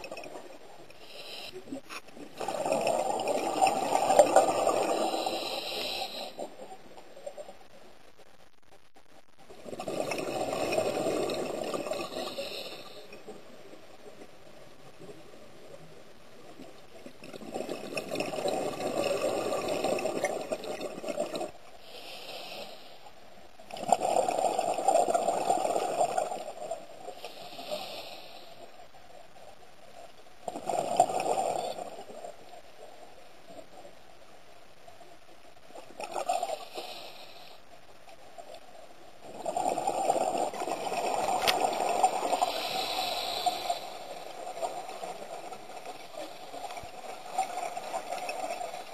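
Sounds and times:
faint regulator hiss: 0:00.0 - 0:02.4, 0:03.2 - 0:17.3, 0:21.4 - 0:23.7, 0:26.3 - 0:30.5, 0:31.4 - 0:39.3, 0:40.2 - 0:48.9
bubbling exhaled air underwater: 0:02.2 - 0:06.4, 0:09.6 - 0:13.0.

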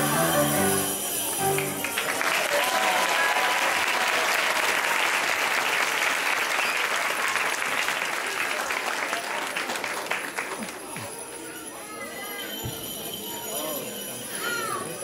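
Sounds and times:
song accompaniment: 0:00.0 - 0:02.2
audience applauding: 0:00.0 - 0:11.1.

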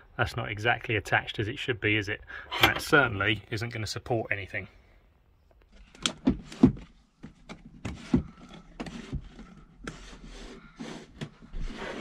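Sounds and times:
drawer sliding scrapes: 0:07.8 - 0:12.0.

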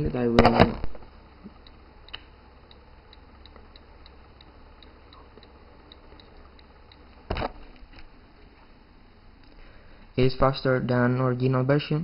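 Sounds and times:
low steady hum: 0:00.0 - 0:12.0
faint even ticking: 0:01.2 - 0:07.3.

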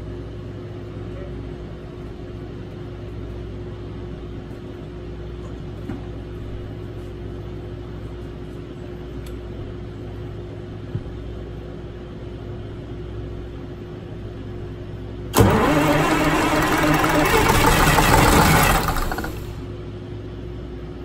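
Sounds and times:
diesel engine cranking on starter: 0:15.3 - 0:19.6.

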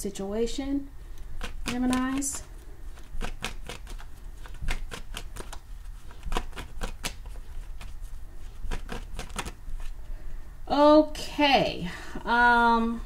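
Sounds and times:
cards being shuffled: 0:01.3 - 0:10.0.

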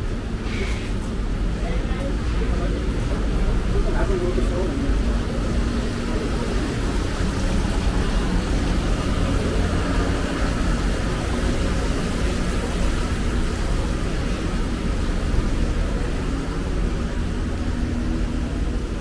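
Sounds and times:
low street rumble: 0:00.0 - 0:19.0.

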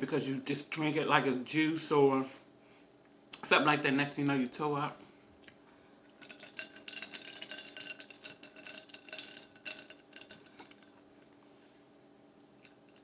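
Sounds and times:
ice clinking in a glass: 0:06.2 - 0:11.0.

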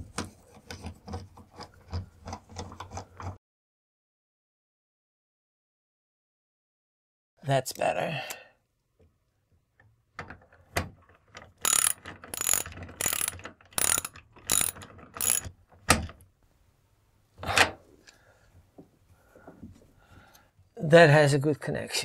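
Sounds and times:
ratchet wrench clicking: 0:11.6 - 0:15.5.

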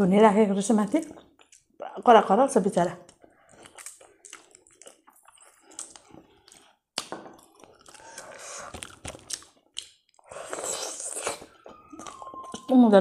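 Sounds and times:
wet chewing: 0:00.9 - 0:02.1, 0:03.0 - 0:12.8
lip smacks and clicks: 0:03.1 - 0:12.7.

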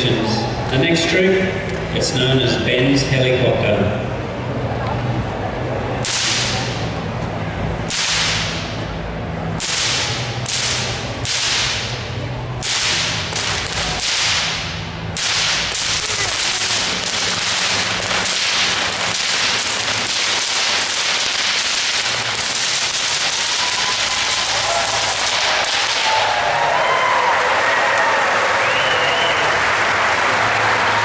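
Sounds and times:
whip cracking: 0:06.0 - 0:07.0, 0:07.8 - 0:09.0, 0:09.6 - 0:26.8.

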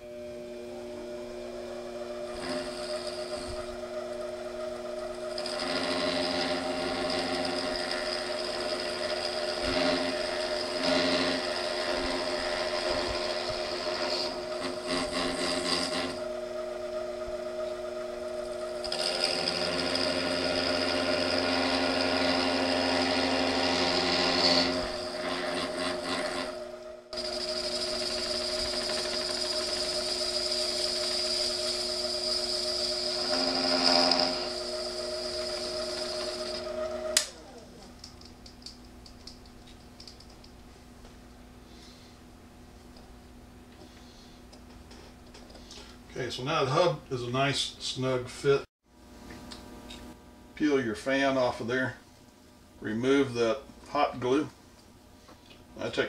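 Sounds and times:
lathe motor whining: 0:00.0 - 0:39.4.

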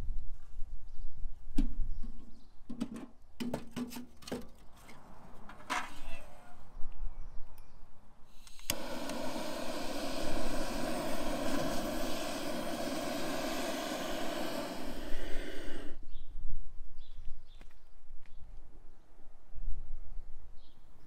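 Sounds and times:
blowtorch flame hissing: 0:08.3 - 0:16.0
blowtorch clicking alight: 0:08.4 - 0:16.0.

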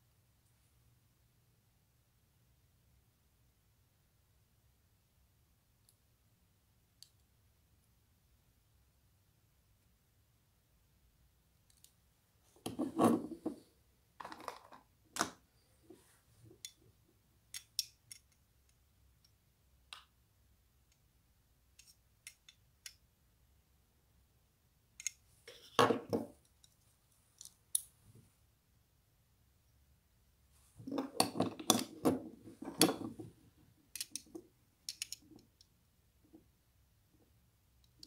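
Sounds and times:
small metal and plastic clicks: 0:11.7 - 0:12.0, 0:17.5 - 0:20.1, 0:21.7 - 0:23.0, 0:25.0 - 0:25.8, 0:33.9 - 0:35.7.

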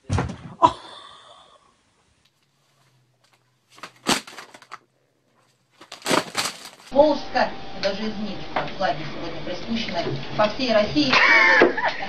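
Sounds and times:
low steady hum: 0:05.8 - 0:12.0.

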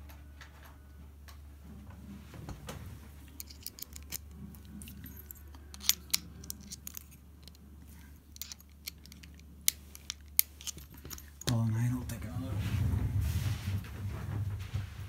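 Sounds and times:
screwdriver clicking on padlock: 0:03.4 - 0:11.5.

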